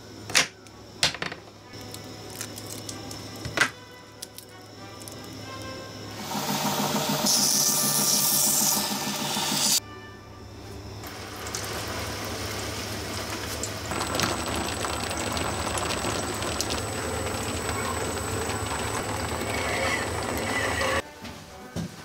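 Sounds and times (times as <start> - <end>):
thin high whine: 1.7 - 21.0
water-cooled grinding wheel: 4.4 - 9.8, 10.9 - 21.0
belt grinder grinding blade: 6.2 - 9.8, 17.2 - 21.0.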